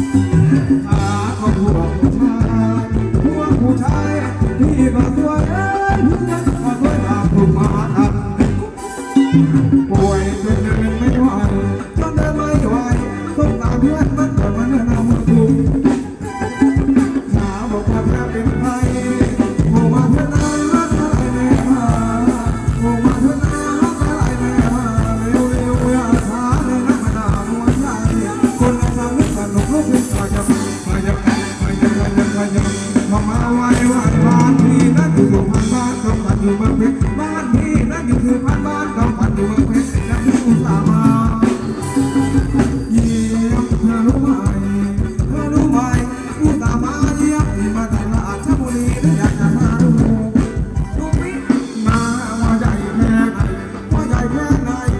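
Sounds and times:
live dance band music: 0:00.0 - 0:54.9
person singing: 0:00.0 - 0:54.9.

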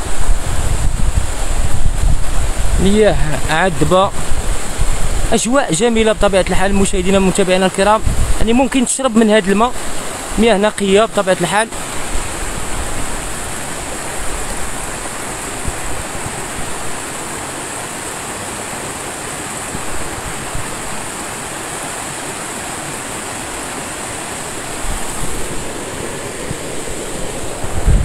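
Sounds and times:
stream rushing over rocks: 0:00.0 - 0:28.0.

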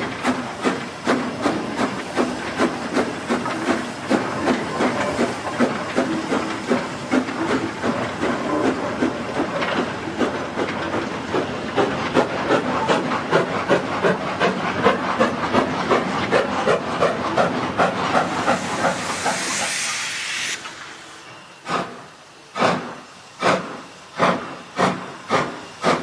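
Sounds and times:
steam locomotive exhaust barking: 0:00.2 - 0:26.0.

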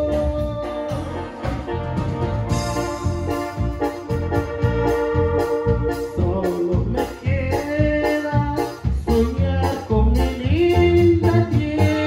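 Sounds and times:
bass and drum beat: 0:00.0 - 0:12.0
organ-like keyboard melody: 0:00.0 - 0:12.0.

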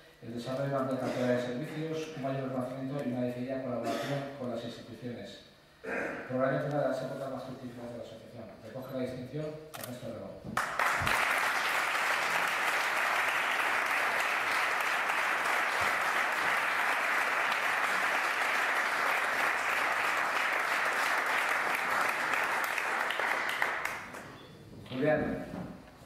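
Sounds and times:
audience applauding: 0:10.6 - 0:24.4.

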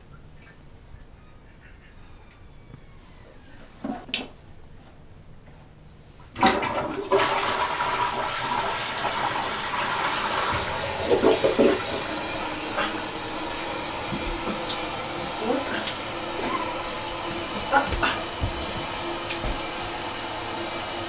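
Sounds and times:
appliance running with rushing hiss: 0:07.2 - 0:21.0.

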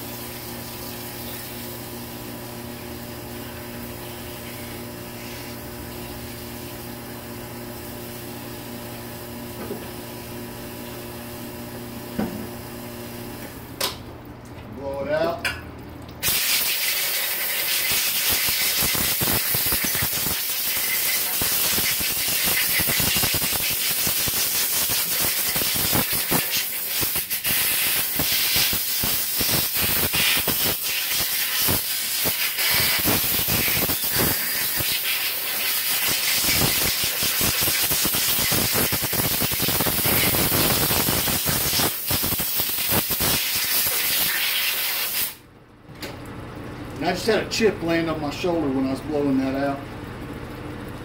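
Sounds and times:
compressed air hissing: 0:16.2 - 0:45.4.

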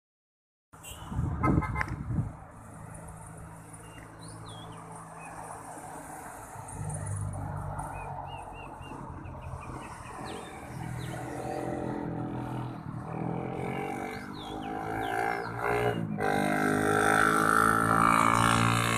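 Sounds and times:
road traffic passing: 0:00.8 - 0:18.9
birds chirping: 0:03.6 - 0:05.7, 0:07.8 - 0:16.8.

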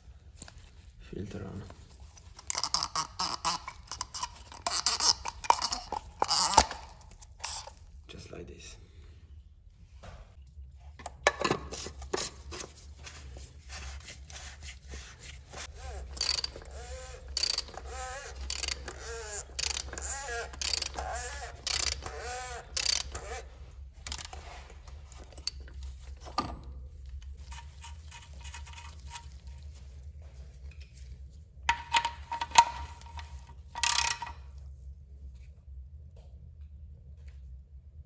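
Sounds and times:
ratchet wrench clicking: 0:15.8 - 0:23.4, 0:24.0 - 0:24.4, 0:33.8 - 0:34.4.

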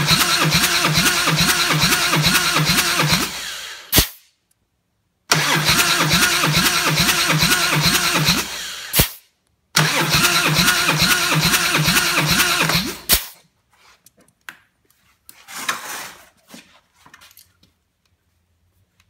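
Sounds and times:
engine cranking on starter: 0:00.0 - 0:03.9, 0:05.3 - 0:09.2, 0:09.8 - 0:13.4.

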